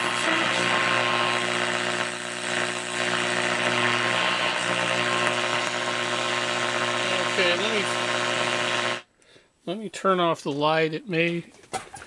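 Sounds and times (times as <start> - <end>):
radio static hiss: 0.0 - 9.0
buzzing mains hum: 0.0 - 9.1.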